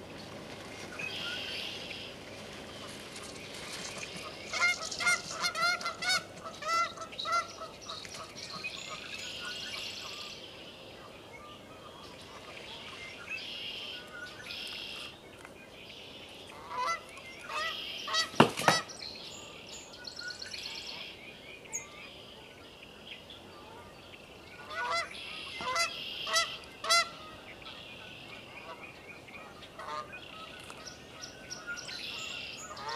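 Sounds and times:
geese honking: 0:04.1 - 0:10.2, 0:16.5 - 0:18.9, 0:24.6 - 0:27.4, 0:28.1 - 0:30.9, 0:32.2 - 0:32.9.

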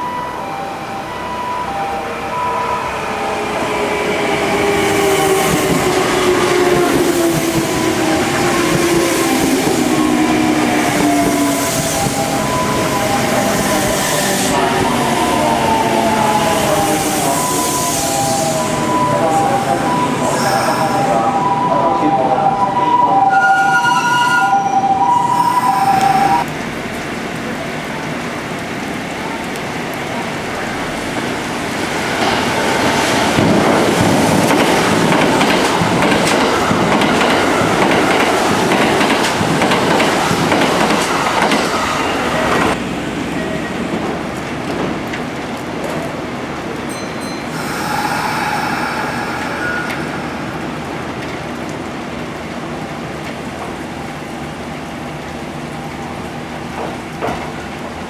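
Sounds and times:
train wheel and rail noise: 0:00.0 - 0:58.0
multi-tone signal: 0:11.8 - 0:13.4, 0:17.2 - 0:26.4.

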